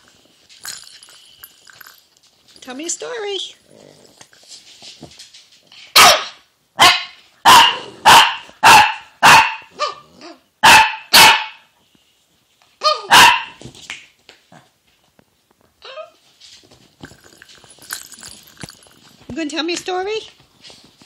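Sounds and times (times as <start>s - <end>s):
small dog barking: 5.9s - 11.7s, 12.8s - 13.6s.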